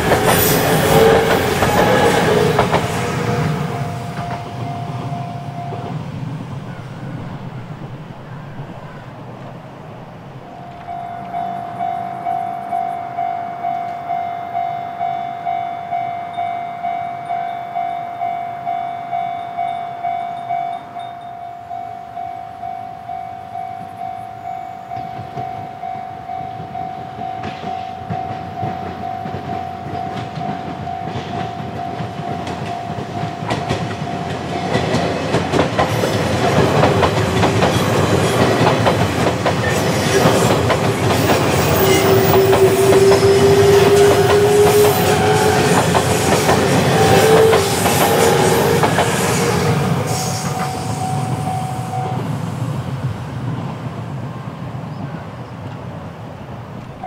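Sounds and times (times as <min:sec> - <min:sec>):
train wheels clattering over rails: 0:00.0 - 0:11.6, 0:26.5 - 0:54.0
level crossing warning bell: 0:00.0 - 0:39.0, 0:39.7 - 0:52.3
train whine: 0:00.0 - 0:57.0.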